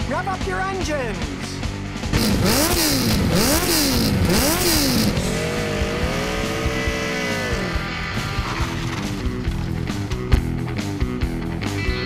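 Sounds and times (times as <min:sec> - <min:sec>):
motorcycle engine revving: 0:01.9 - 0:10.4.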